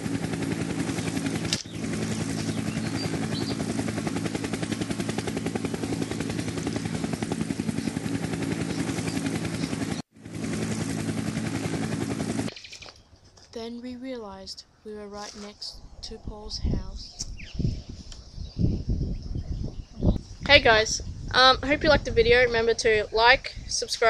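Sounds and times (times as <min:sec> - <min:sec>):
low engine drone: 0:00.0 - 0:12.5
helicopter rotor chop: 0:00.0 - 0:12.9.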